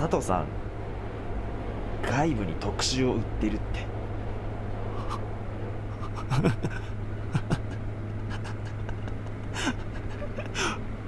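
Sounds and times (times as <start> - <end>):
subway car hum and rumble: 0.0 - 11.0
man chuckling: 5.9 - 10.8.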